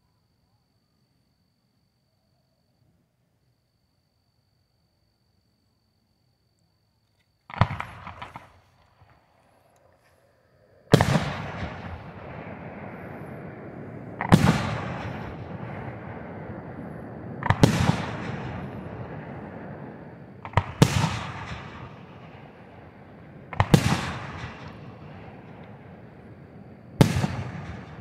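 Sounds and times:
firework shells booming: 0:07.5 - 0:09.2, 0:10.7 - 0:28.0.

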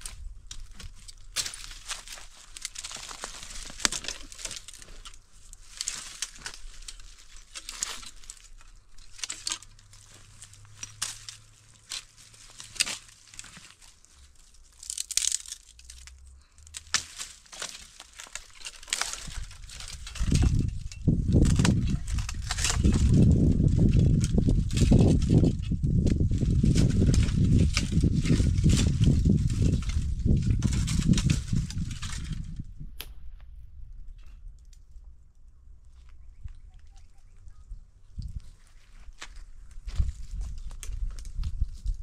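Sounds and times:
dry leaves and twigs snapping: 0:00.0 - 0:42.0
low rumble: 0:19.2 - 0:38.6.

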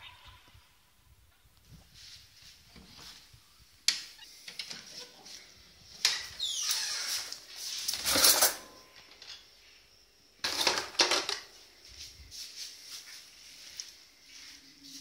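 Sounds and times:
metal objects clattering in drawer: 0:07.9 - 0:08.8, 0:10.4 - 0:11.4.

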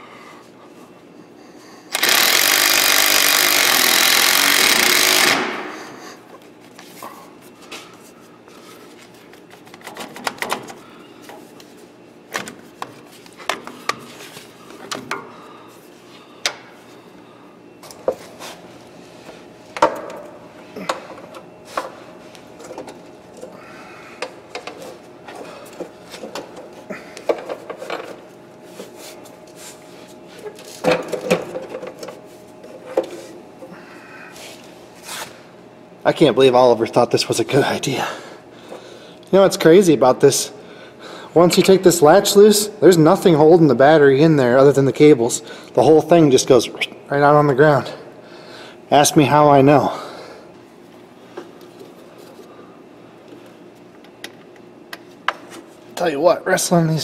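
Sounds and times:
cordless impact driver running: 0:01.9 - 0:05.7.

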